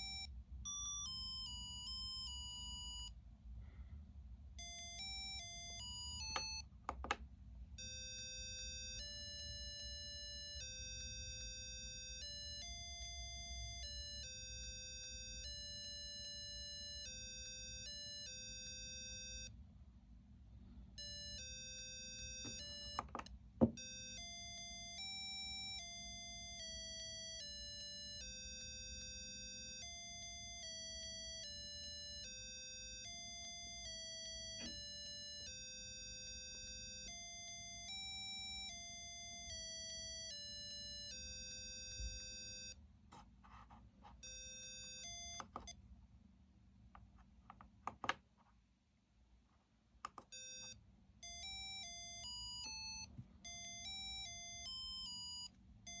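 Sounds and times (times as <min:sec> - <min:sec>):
electronic beeping melody: 0:04.6 - 0:06.6
clicks: 0:06.3 - 0:07.3, 0:50.0 - 0:50.8.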